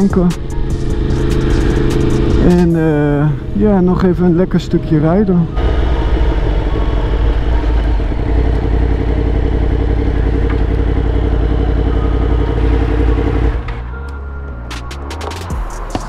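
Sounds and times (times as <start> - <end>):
motorcycle engine running steadily: 0.0 - 14.0.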